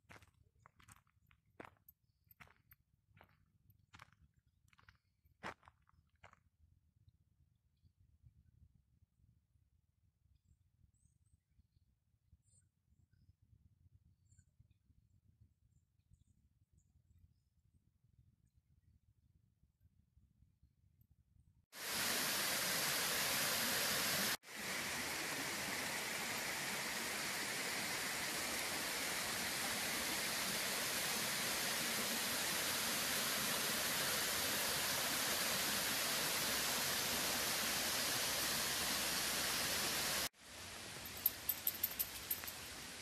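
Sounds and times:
water rushing over weir: 0:21.8 - 0:40.3
quiet hiss: 0:21.8 - 0:43.0.

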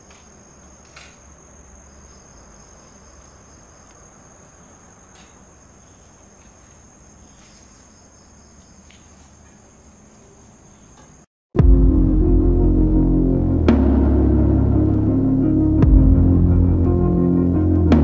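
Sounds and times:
night insects trilling: 0:00.0 - 0:11.3.

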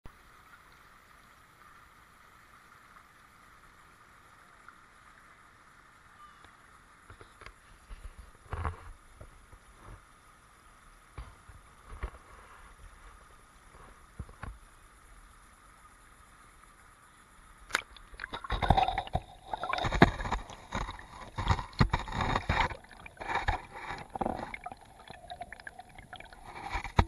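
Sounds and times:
creek water babbling: 0:00.1 - 0:11.9, 0:12.8 - 0:27.0
low thumps and sloshes: 0:17.7 - 0:27.0.

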